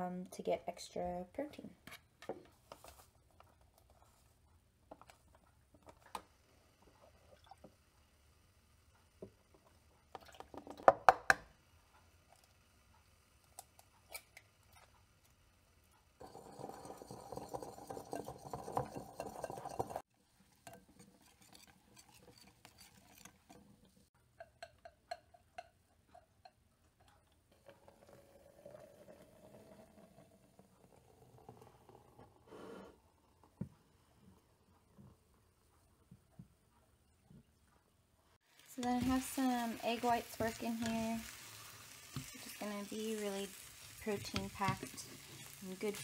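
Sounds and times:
whisk knocking on bowl: 16.2s - 20.0s
whisk scraping batter in bowl: 16.2s - 24.0s.

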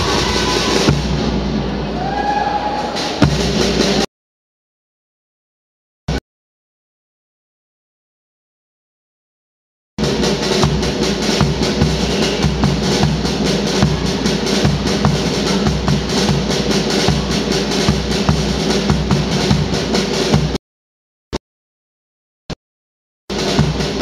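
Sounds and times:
snare and bass drum beat: 0.0s - 1.8s, 3.0s - 4.1s, 10.0s - 20.6s, 23.3s - 24.0s
marching music: 0.0s - 2.2s, 2.8s - 4.1s, 10.0s - 20.6s, 23.3s - 24.0s.

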